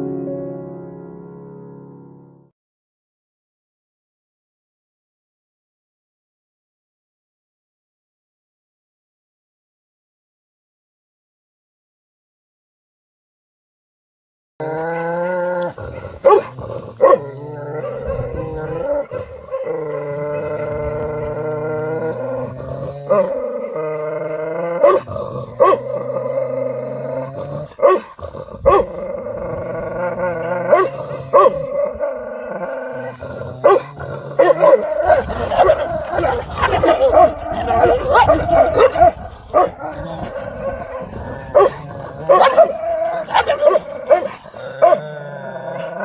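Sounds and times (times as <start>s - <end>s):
dogs barking and snapping: 14.6s - 26.3s, 27.3s - 32.0s, 32.6s - 46.0s
dogs growling and yowling: 14.6s - 46.0s.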